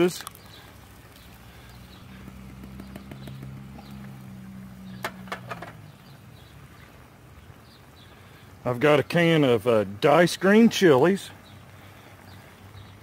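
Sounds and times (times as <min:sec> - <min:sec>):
tin can taps: 0:05.0 - 0:05.8.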